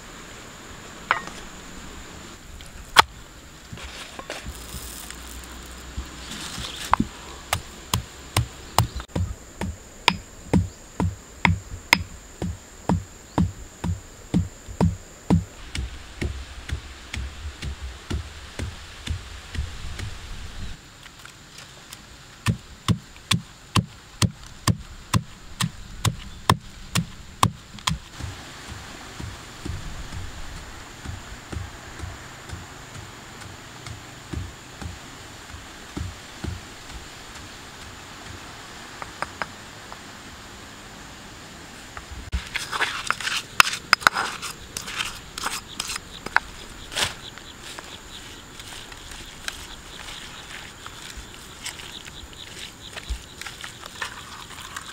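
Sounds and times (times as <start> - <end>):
leaves crinkling and rustling: 0.0 - 10.4, 15.4 - 54.9
dull thump: 5.9 - 20.2, 22.4 - 37.4
pestle pounding in stone mortar: 7.0 - 20.1, 22.4 - 30.3, 33.8 - 36.7.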